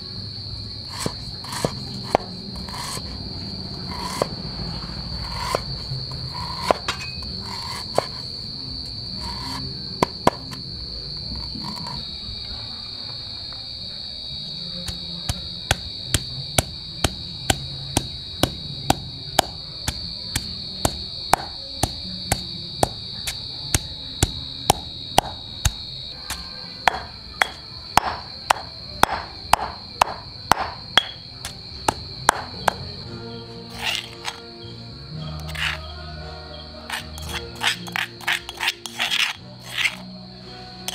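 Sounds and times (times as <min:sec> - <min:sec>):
pestle pounding in stone mortar: 0:10.0 - 0:10.5, 0:14.8 - 0:32.9.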